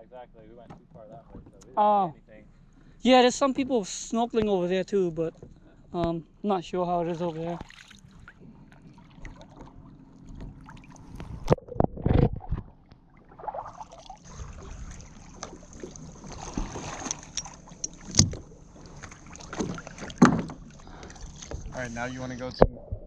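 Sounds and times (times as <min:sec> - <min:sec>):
water sloshing and splashing: 0:02.5 - 0:22.5
knocks against kayak hull: 0:19.5 - 0:20.7.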